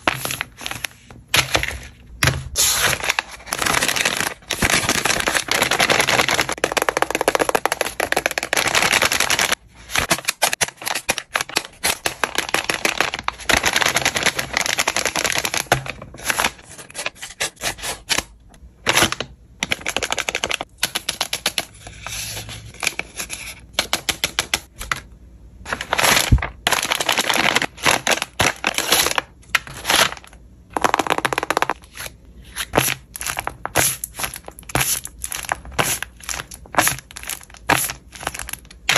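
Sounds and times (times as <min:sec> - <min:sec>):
taped paper crinkling and crackling: 0:02.6 - 0:17.4, 0:25.7 - 0:32.0, 0:32.8 - 0:38.9.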